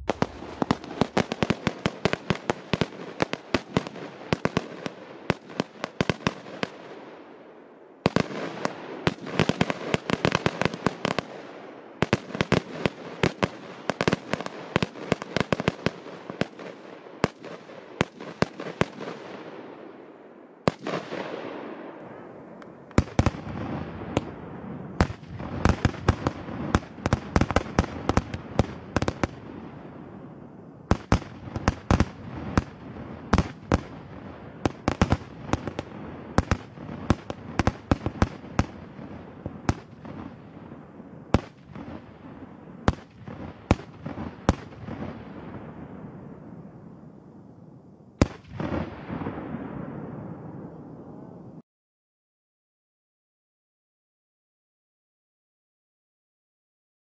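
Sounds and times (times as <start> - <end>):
firecrackers banging rapidly: 0.0 - 6.7.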